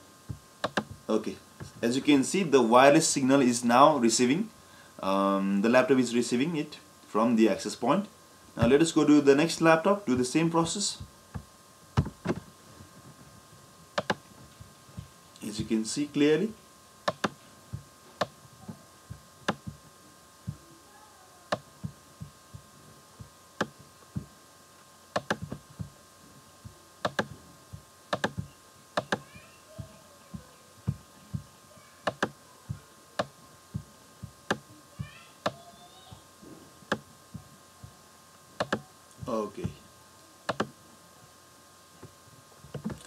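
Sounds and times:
faint electrical hum: 0:00.0 - 0:43.0
computer mouse clicking: 0:00.6 - 0:00.9, 0:17.1 - 0:17.4, 0:25.2 - 0:25.6, 0:28.1 - 0:29.2, 0:38.6 - 0:38.8, 0:40.5 - 0:40.7.

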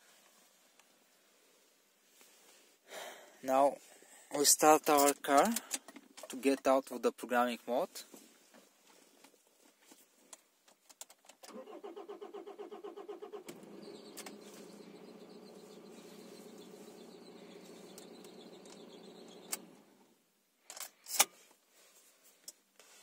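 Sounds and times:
starter motor cranking: 0:11.5 - 0:19.9
car engine idling: 0:11.7 - 0:20.0
sharp clicks: 0:17.1 - 0:19.7.

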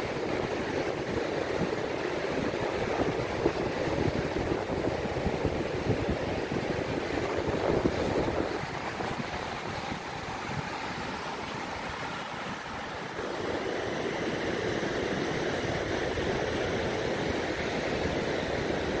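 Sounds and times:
ocean surf on beach: 0:00.0 - 0:19.0
wind buffeting microphone: 0:00.1 - 0:12.0.

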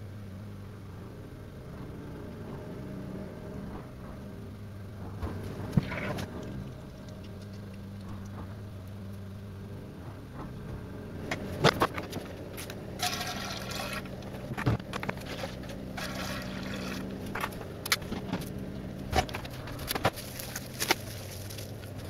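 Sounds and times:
low hum: 0:00.0 - 0:22.0
liquid pouring and splashing: 0:13.0 - 0:14.1, 0:16.0 - 0:17.1.

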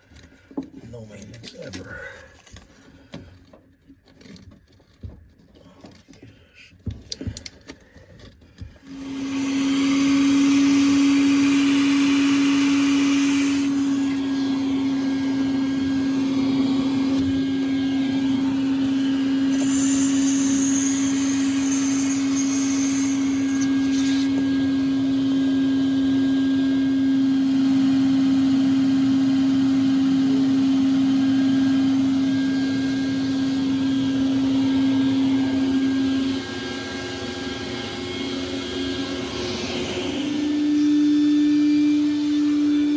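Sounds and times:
shop vacuum running: 0:08.6 - 0:42.9.

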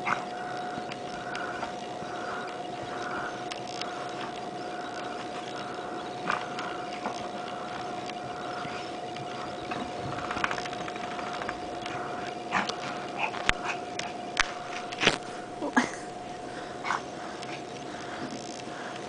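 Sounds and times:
steady humming tone: 0:00.0 - 0:19.0.

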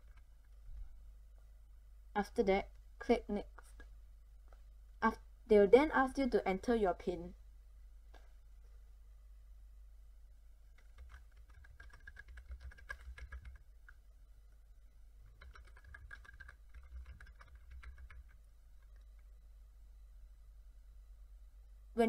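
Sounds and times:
typing on computer keyboard: 0:00.0 - 0:00.6, 0:10.7 - 0:14.0, 0:15.3 - 0:19.3.

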